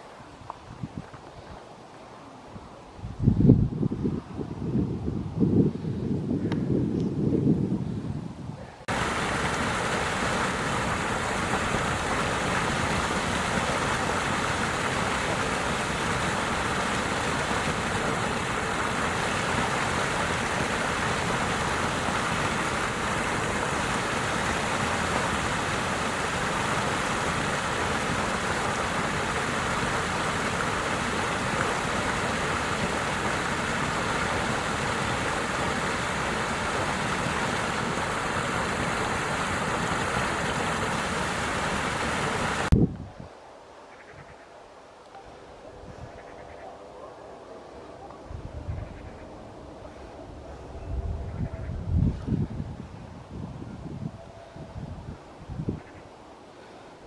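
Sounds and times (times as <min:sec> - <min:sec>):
waterfall splashing into pool: 0:08.9 - 0:42.8.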